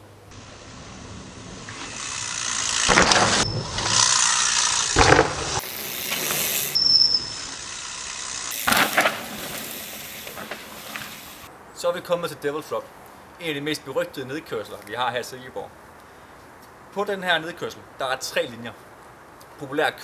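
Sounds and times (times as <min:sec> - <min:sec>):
bike tyres rushing on dirt: 0:00.3 - 0:11.5
high squeal: 0:02.9 - 0:04.9, 0:06.4 - 0:07.9
clattering knock of bikes: 0:04.9 - 0:06.4, 0:08.5 - 0:11.3.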